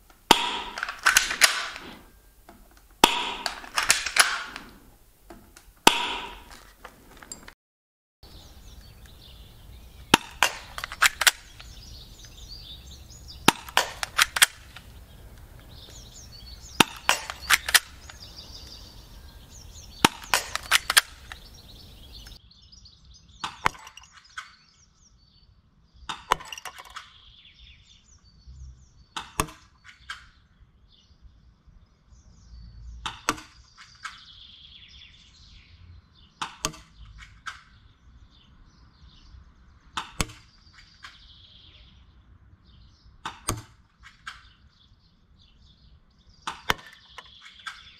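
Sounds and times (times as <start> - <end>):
airsoft pistol cocking clicks: 0.1 - 6.6, 10.1 - 22.4
airsoft pistol shots: 0.3 - 2.1, 3.0 - 4.9, 5.8 - 6.6, 10.0 - 15.0, 15.8 - 22.4.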